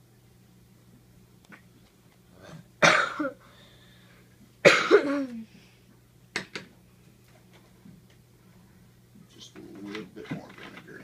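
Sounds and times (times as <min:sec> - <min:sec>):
person coughing: 0:02.8 - 0:03.4, 0:04.6 - 0:05.4.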